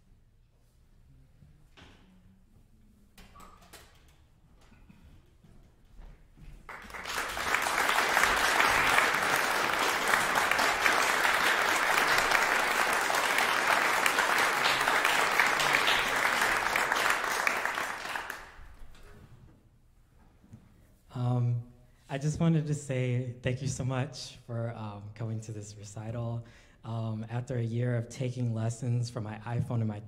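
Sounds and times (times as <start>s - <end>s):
audience applauding: 6.6s - 18.8s.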